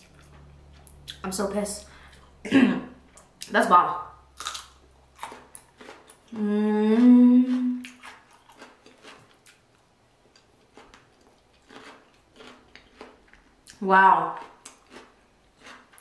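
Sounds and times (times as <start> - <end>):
woman humming while eating: 6.3 - 7.9.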